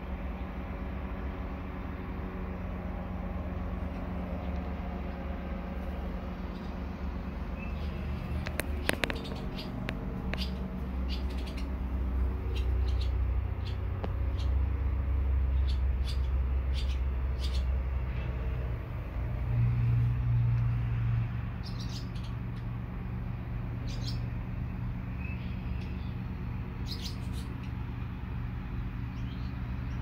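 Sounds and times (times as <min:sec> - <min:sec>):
deep hum: 0:00.0 - 0:30.0
low outdoor rumble: 0:00.0 - 0:30.0
swallow chirping: 0:06.4 - 0:14.6, 0:15.5 - 0:18.3, 0:23.8 - 0:24.3, 0:26.8 - 0:27.8.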